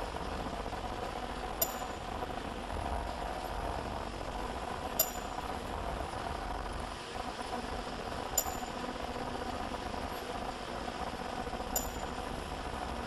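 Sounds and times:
machine humming: 0.0 - 13.0
sharp click with high ring: 1.6 - 2.1, 5.0 - 5.5, 8.4 - 8.8, 11.8 - 12.2.

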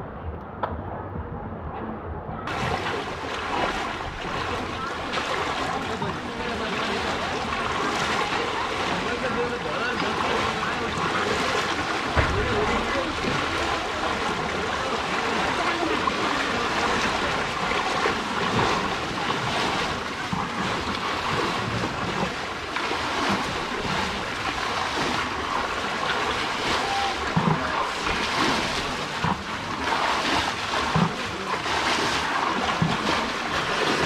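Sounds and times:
dull low thumps: 0.0 - 4.9, 10.6 - 22.6
floodwater rushing: 2.5 - 34.0.

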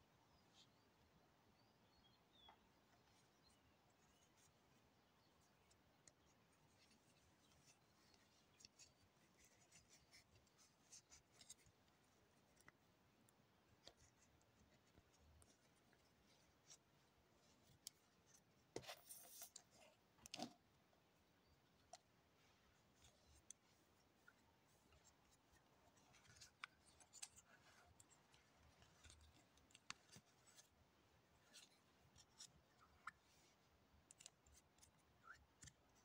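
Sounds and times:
scratchy rustling of hemp winding: 3.1 - 20.5.

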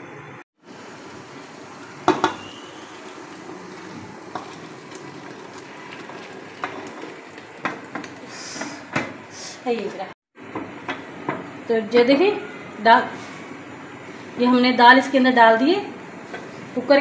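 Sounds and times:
pot knocking against metal rim: 2.1 - 2.4, 6.0 - 8.2.

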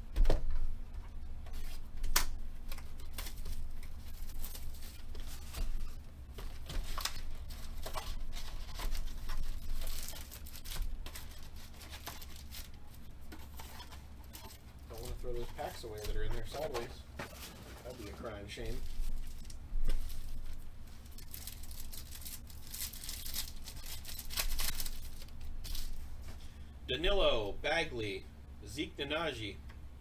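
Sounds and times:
shrink-wrap tearing and crinkling: 2.7 - 26.0.

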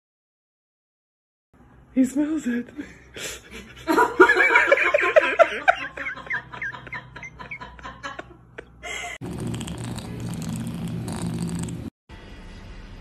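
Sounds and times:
person laughing: 3.2 - 9.2.

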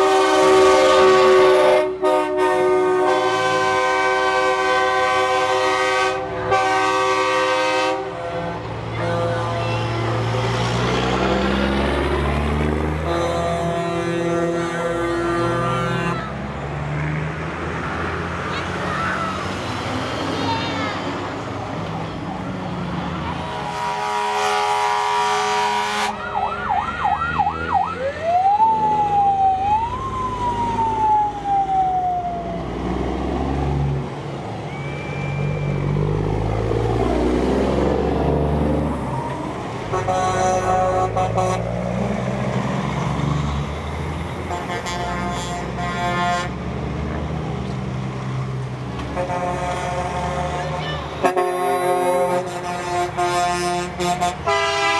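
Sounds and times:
truck air horn blasts: 0.0 - 10.3, 13.0 - 16.4, 23.5 - 26.3, 39.8 - 41.8, 44.4 - 46.6, 49.0 - 54.9
truck diesel engines: 0.0 - 54.9
siren yelp and wail: 26.0 - 32.8, 34.6 - 36.0, 38.9 - 39.8.

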